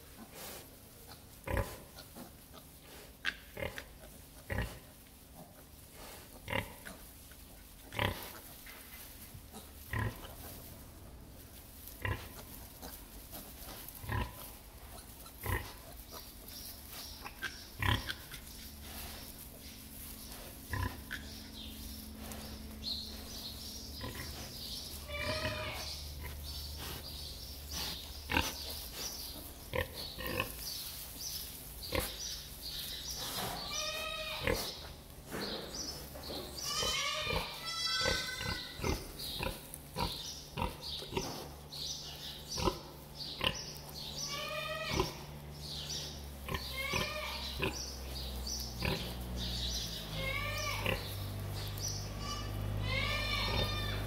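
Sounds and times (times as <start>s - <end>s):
pig grunting: 0.0s - 8.5s, 9.5s - 10.6s, 12.0s - 16.5s, 17.1s - 19.4s, 20.2s - 30.6s, 37.1s - 41.6s, 42.2s - 43.7s, 44.6s - 54.0s
piglet squealing: 36.7s - 38.8s, 46.6s - 47.4s, 52.2s - 54.0s.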